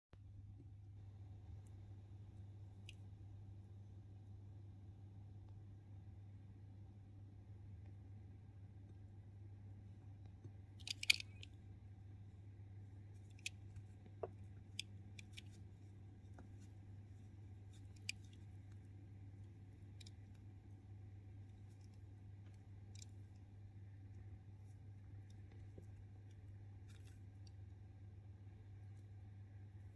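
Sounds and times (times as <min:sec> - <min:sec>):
steady low hum: 0:00.2 - 0:29.9
stone beads clicking together: 0:10.8 - 0:11.6.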